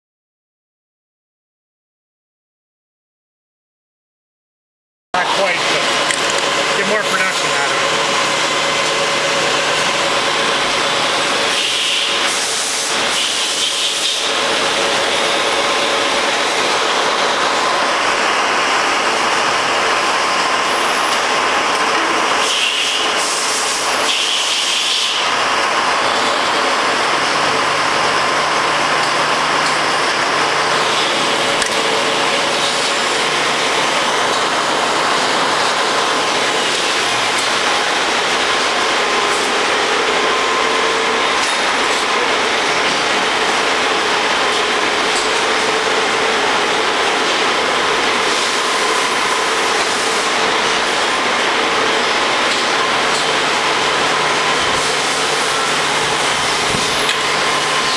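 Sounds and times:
lathe machine hum: 0:05.2 - 0:57.9
coolant spray hissing: 0:05.4 - 0:14.2, 0:22.4 - 0:25.2, 0:48.2 - 0:50.4.

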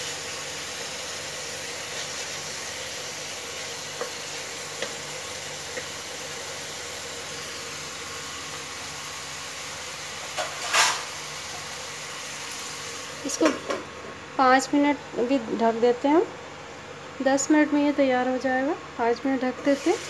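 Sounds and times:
chicken sizzling in a pan: 0:00.0 - 0:13.8, 0:19.6 - 0:20.0
spatula tapping pan: 0:04.8 - 0:05.0.

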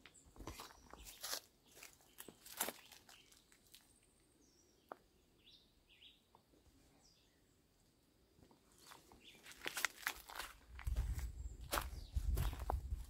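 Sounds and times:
faint bird chirps: 0:00.1 - 0:07.7.

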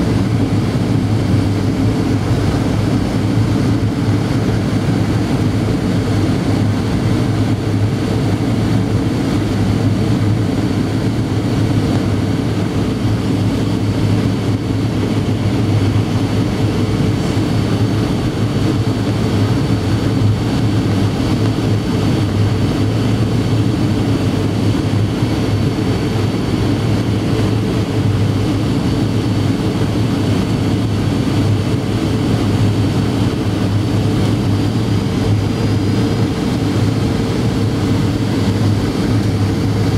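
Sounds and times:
airplane cabin roar: 0:00.0 - 0:39.9.

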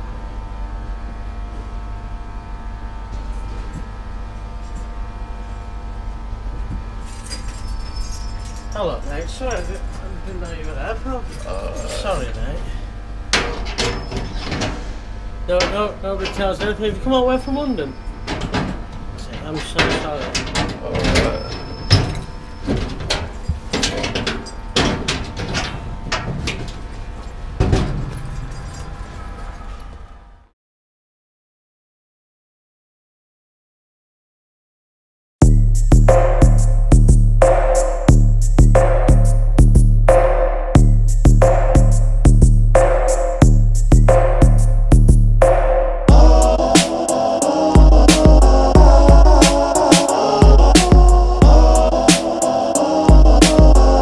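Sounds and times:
train machinery humming: 0:01.0 - 0:30.3, 0:46.1 - 0:54.0
metallic jingle of keys: 0:07.0 - 0:12.3, 0:28.0 - 0:29.6
knocks and clatters: 0:18.3 - 0:29.0.

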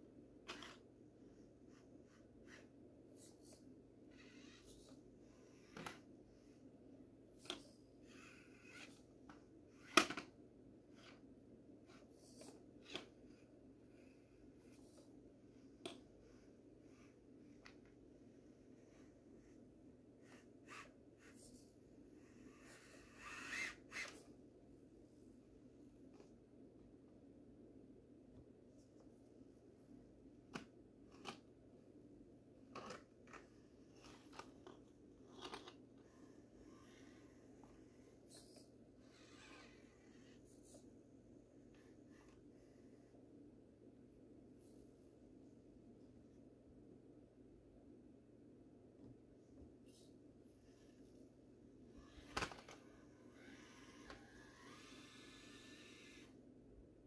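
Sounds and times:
faint low hum: 0:00.0 - 0:57.0
soft scratching: 0:07.4 - 0:10.0, 0:32.7 - 0:41.0.

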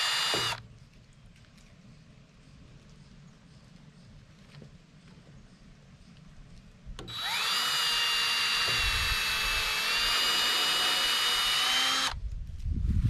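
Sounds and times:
power tool motor whining: 0:00.0 - 0:00.6, 0:07.0 - 0:12.2.

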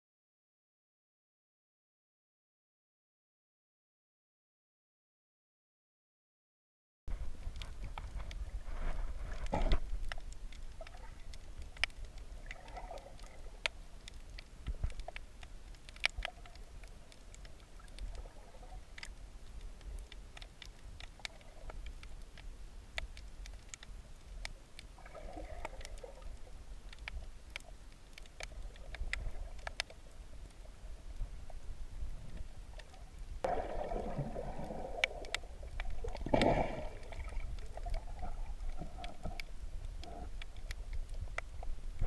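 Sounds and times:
underwater clicks and crackles: 0:07.1 - 0:42.0
underwater rumble of moving water: 0:07.1 - 0:42.0
muffled swell of water: 0:24.9 - 0:42.0.

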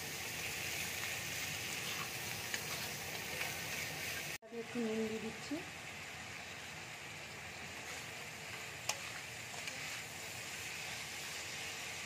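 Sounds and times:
food sizzling in oil: 0:00.0 - 0:12.0
spatula scraping: 0:00.7 - 0:04.4, 0:07.8 - 0:11.5.

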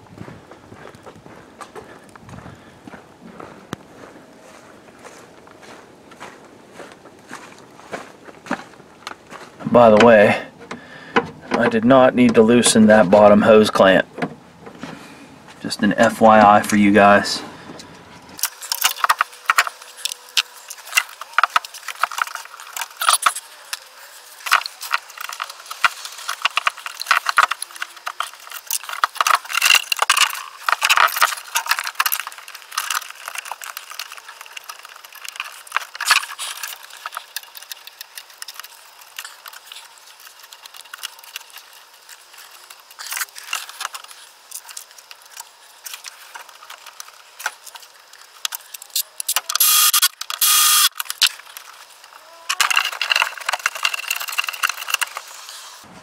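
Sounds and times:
plastic pump clicking and rattling: 0:52.5 - 0:55.4.

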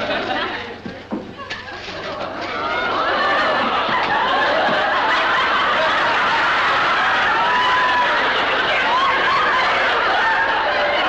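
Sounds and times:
studio audience laughing: 0:00.0 - 0:11.0.

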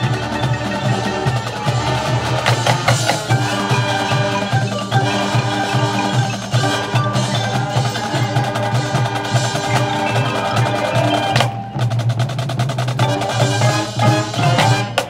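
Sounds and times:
marimbas and mallet percussion: 0:00.0 - 0:11.9
drums beating: 0:00.0 - 0:15.0
low brass chords: 0:13.0 - 0:15.0.

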